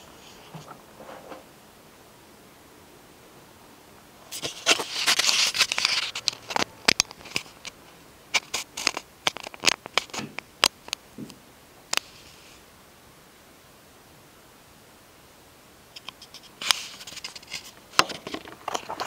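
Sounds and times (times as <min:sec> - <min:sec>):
paper rustling: 0:04.3 - 0:07.8, 0:16.2 - 0:19.0.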